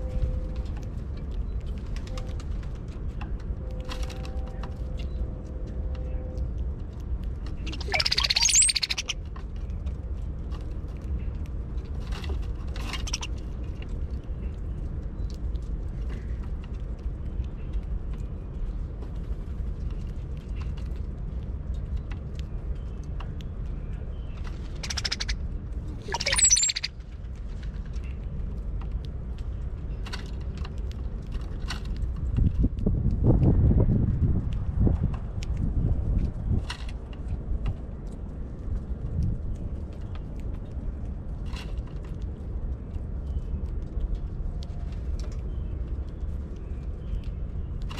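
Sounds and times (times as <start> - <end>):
steady low rumble: 0.0 - 47.9
birds calling: 7.7 - 9.2, 24.3 - 25.4, 26.0 - 26.9.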